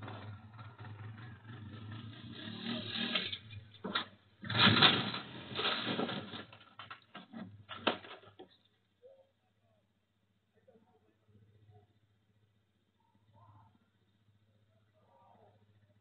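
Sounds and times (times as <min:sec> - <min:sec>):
clattering crash: 0:00.0 - 0:08.6
atv engine running: 0:00.0 - 0:09.1, 0:10.3 - 0:16.0.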